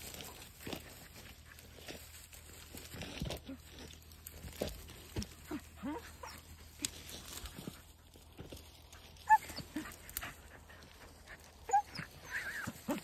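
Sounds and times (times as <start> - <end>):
dry grass and brush crackling: 0.0 - 13.0
dog yelping: 5.5 - 7.0, 9.2 - 13.0.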